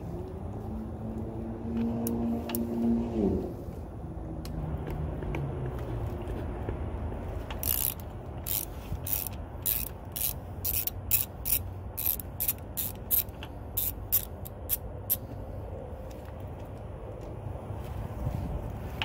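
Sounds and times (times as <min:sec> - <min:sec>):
ratcheting wrench clicking: 0:07.4 - 0:15.2.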